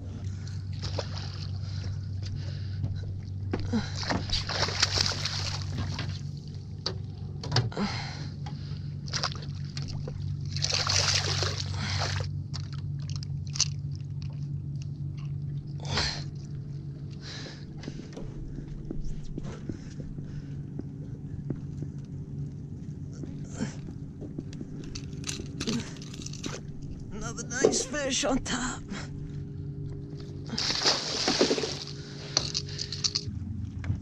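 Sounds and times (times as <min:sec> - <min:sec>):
boat motor humming: 0:00.0 - 0:34.0
fish splashing at surface: 0:30.5 - 0:32.8.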